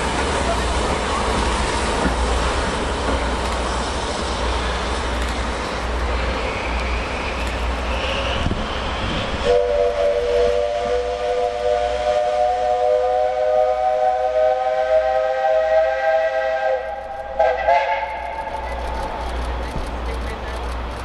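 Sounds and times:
steam hissing: 0.0 - 21.0
steam whistle blasts: 7.9 - 18.6.

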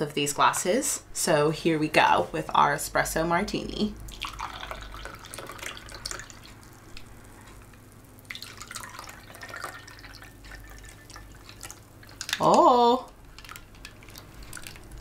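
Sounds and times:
liquid pouring and dripping: 4.0 - 15.0.

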